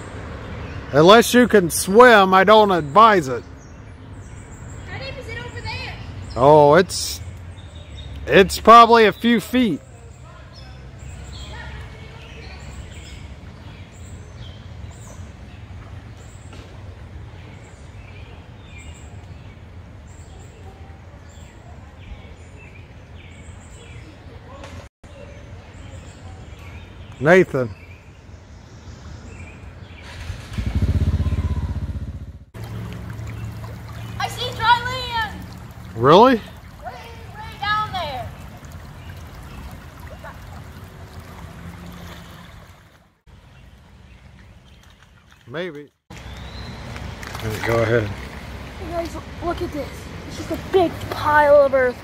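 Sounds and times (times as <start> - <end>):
birds chirping: 0.0 - 52.0
water rushing over paved path: 30.0 - 52.0.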